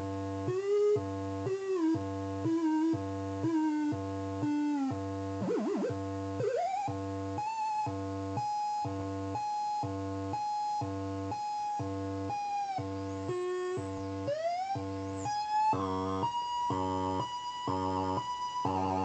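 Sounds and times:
pulsing electronic drone: 4.6 - 7.2, 12.8 - 19.0.

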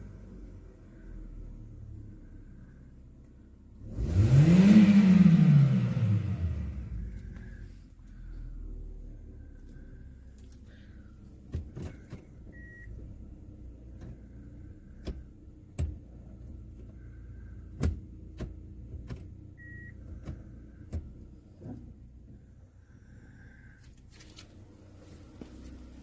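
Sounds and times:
car engine idling: 0.0 - 26.0
short beeps: 12.5 - 13.0, 19.6 - 20.0.

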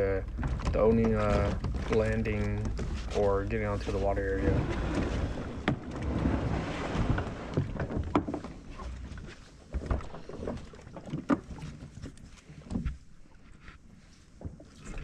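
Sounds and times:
low rumble: 0.0 - 8.2.

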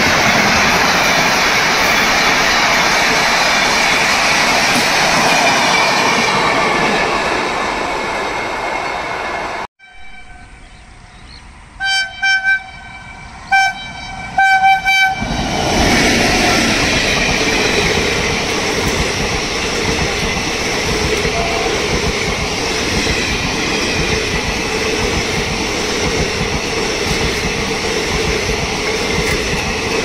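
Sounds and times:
train running past: 0.0 - 30.0
locomotive horn blasts: 9.8 - 10.7, 11.8 - 15.3, 21.2 - 22.0.

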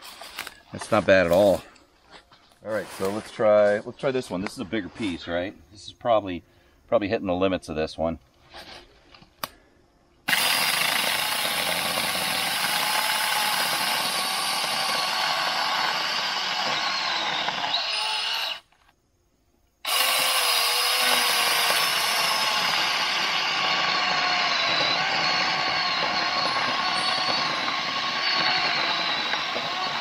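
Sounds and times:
mini chainsaw cutting log: 10.3 - 18.8, 19.8 - 30.0.

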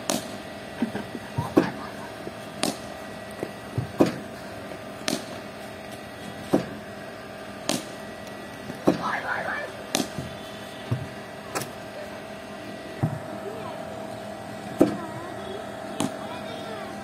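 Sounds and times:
bat striking balls: 0.0 - 11.8, 15.9 - 16.3
machine hum: 0.0 - 17.0.

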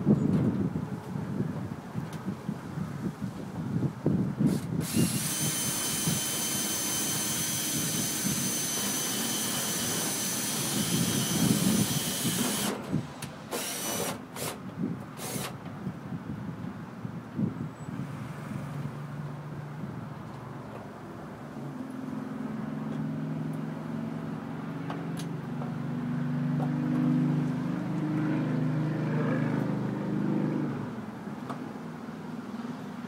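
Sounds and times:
power drill whining: 4.5 - 12.8, 13.5 - 14.6, 15.2 - 15.6.

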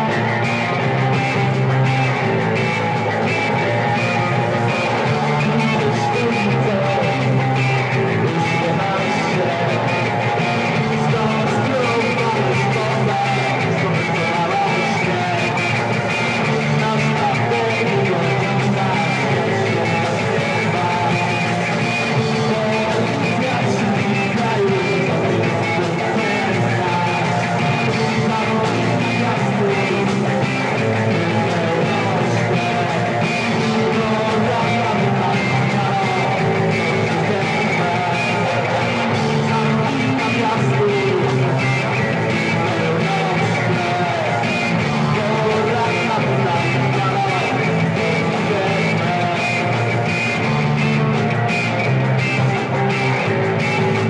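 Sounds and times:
electric guitar: 0.0 - 54.0
person singing: 0.0 - 54.0.

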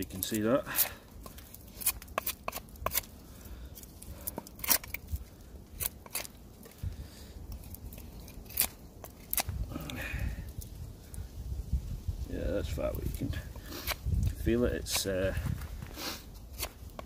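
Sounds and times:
knife scraping bark: 0.0 - 6.8, 7.5 - 10.0, 13.0 - 15.2, 15.9 - 17.0.

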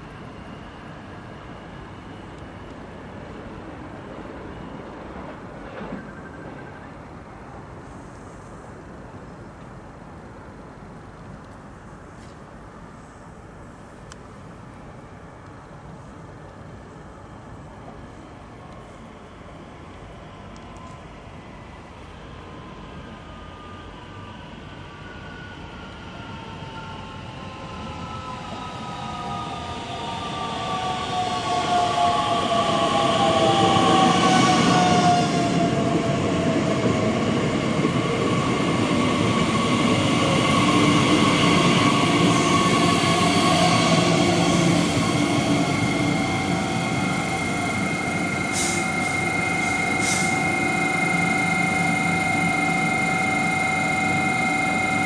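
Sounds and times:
train electrical hum: 0.0 - 55.0
electric train braking: 27.9 - 55.0
short hisses: 48.5 - 48.9, 50.0 - 50.3.

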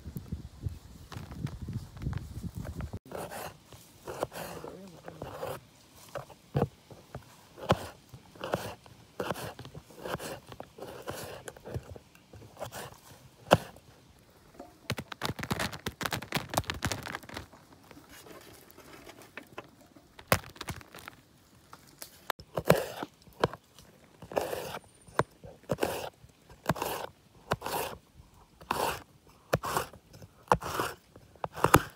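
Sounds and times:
knife cutting carrots on board: 7.6 - 11.9, 12.6 - 13.8, 22.5 - 23.6, 28.6 - 31.9.

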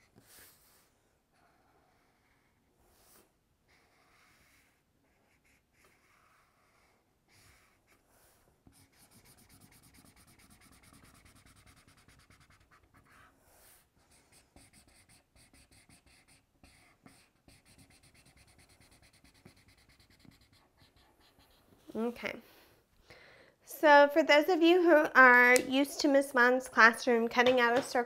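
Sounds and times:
marker colouring on paper: 1.5 - 22.1.

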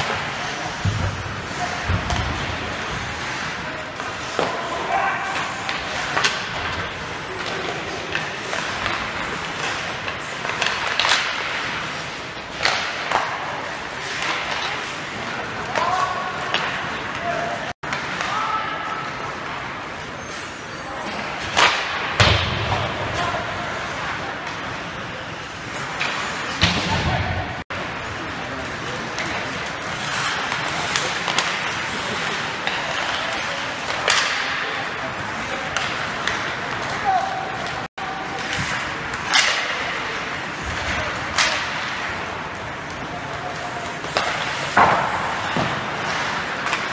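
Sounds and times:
skate blades scraping ice: 0.0 - 17.1, 28.0 - 46.9
hockey sticks and puck clacking: 0.0 - 46.9.

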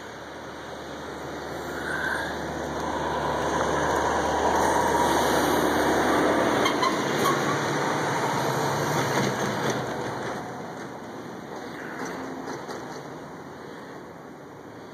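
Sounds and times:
engine running: 0.0 - 13.8.

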